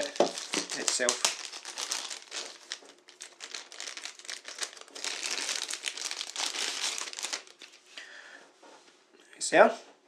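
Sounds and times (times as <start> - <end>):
plastic packaging crinkling: 0.0 - 7.9.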